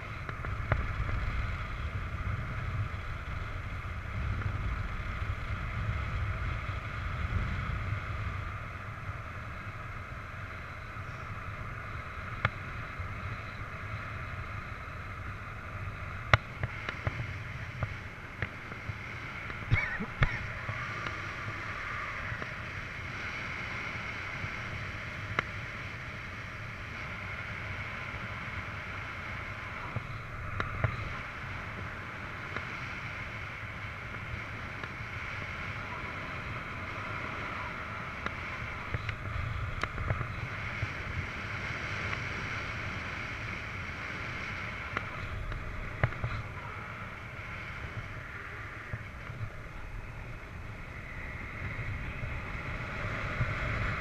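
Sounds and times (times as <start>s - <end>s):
wind rushing over microphone: 0.0s - 54.0s
faint clicks: 29.9s - 31.2s, 44.8s - 46.6s.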